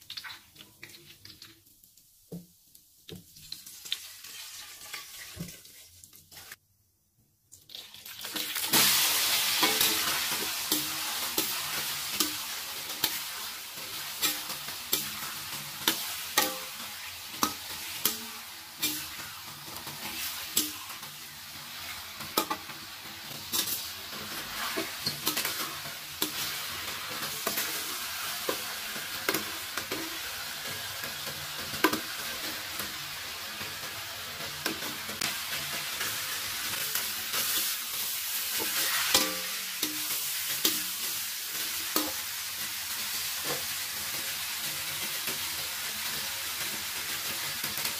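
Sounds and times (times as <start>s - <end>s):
chicken frying in hot oil: 0.0s - 6.6s, 7.6s - 47.9s
metal spatula scraping a wok: 8.6s - 30.6s, 35.5s - 42.2s.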